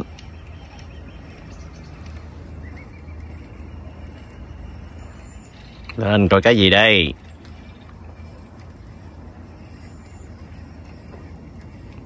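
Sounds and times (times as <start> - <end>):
constant low hum: 0.0 - 12.0
faint high chirps: 0.0 - 12.0
low outdoor rumble: 0.0 - 12.0.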